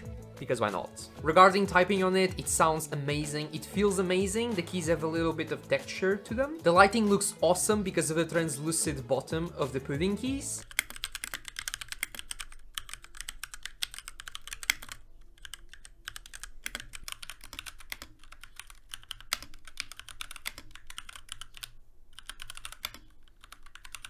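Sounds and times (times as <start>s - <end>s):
mechanical keyboard typing: 10.6s - 24.0s.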